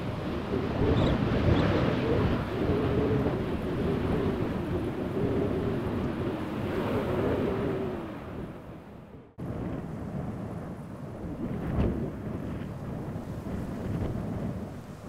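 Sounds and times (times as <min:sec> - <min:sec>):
jet airliner engines rumbling: 0:00.0 - 0:13.1
wind buffeting microphone: 0:00.0 - 0:15.0.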